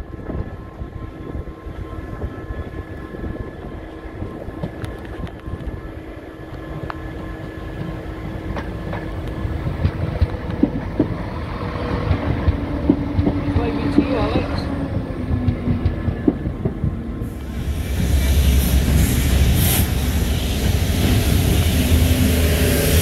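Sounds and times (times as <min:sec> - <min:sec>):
diesel train engine passing: 0:00.0 - 0:23.0
train wheels clicking over joints: 0:07.8 - 0:23.0.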